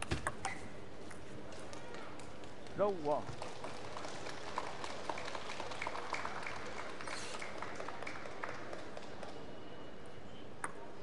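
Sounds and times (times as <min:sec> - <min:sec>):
crowd applauding: 0:03.0 - 0:09.4.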